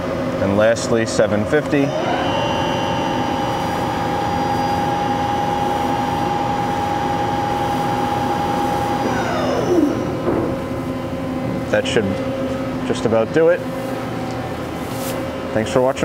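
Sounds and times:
lathe spindle whine: 0:01.8 - 0:11.5.

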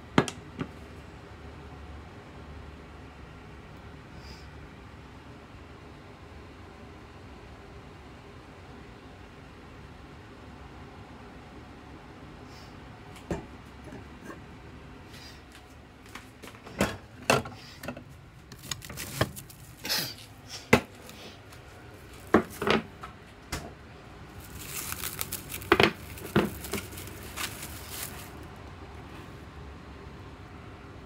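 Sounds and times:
dishes clattering on a countertop: 0:16.6 - 0:18.0
crinkling: 0:18.5 - 0:22.8, 0:24.3 - 0:28.6.

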